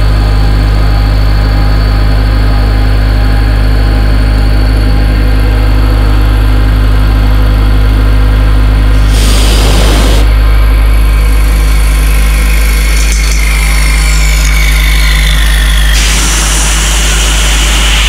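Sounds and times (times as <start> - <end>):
milling machine hum: 0.0 - 18.0
end mill cutting plastic: 8.9 - 18.0.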